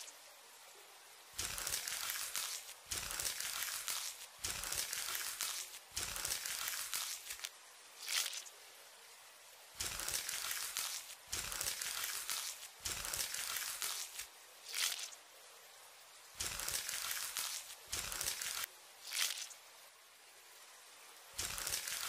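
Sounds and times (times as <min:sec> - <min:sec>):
crackly crinkling bursts: 0:01.4 - 0:08.5, 0:09.8 - 0:15.2, 0:16.4 - 0:19.6, 0:21.4 - 0:22.0.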